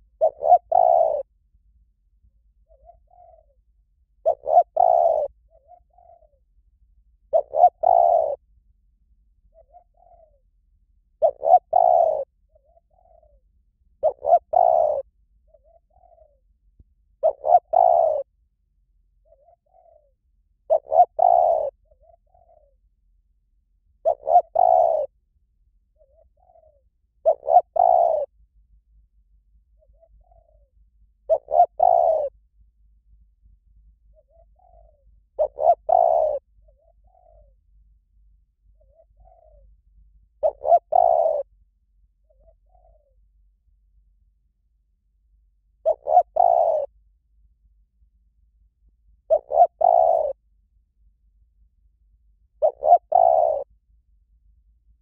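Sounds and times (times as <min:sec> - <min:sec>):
dove cooing: 0:00.0 - 0:01.4, 0:02.6 - 0:06.5, 0:07.2 - 0:08.5, 0:09.4 - 0:10.5, 0:11.2 - 0:16.6, 0:17.2 - 0:18.4, 0:19.2 - 0:22.8, 0:24.0 - 0:25.2, 0:25.9 - 0:28.4, 0:29.8 - 0:32.4, 0:34.0 - 0:37.6, 0:38.3 - 0:41.6, 0:42.2 - 0:43.4, 0:45.7 - 0:47.0, 0:49.2 - 0:50.4, 0:52.6 - 0:53.7.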